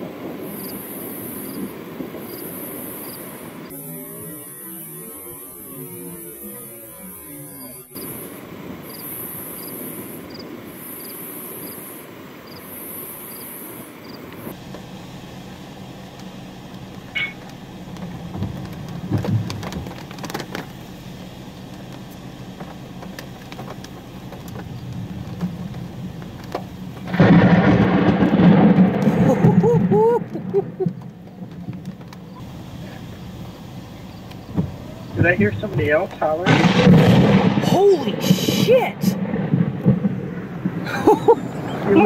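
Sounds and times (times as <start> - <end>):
thunder rumbling: 0.0 - 42.0
vehicle cabin noise: 0.0 - 42.0
sharp cracks: 16.1 - 20.9, 21.6 - 32.4, 34.2 - 42.0.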